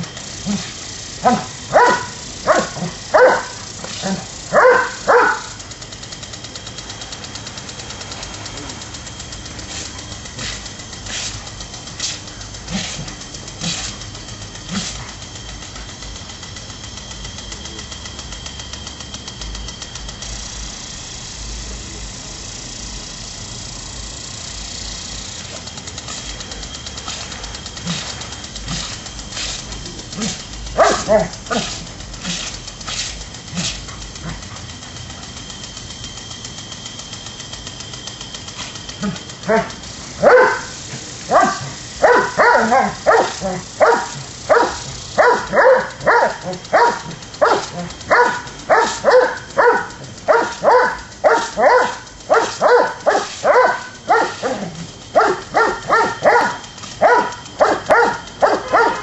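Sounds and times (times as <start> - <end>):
water spray hissing: 0.0 - 59.0
dog barking: 1.2 - 5.6, 30.1 - 32.4, 39.0 - 59.0.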